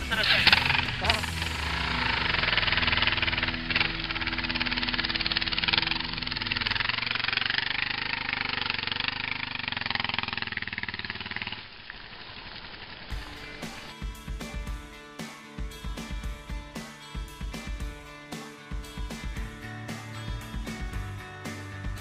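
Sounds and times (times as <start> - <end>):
motorcycle engine riding off: 0.0 - 14.0.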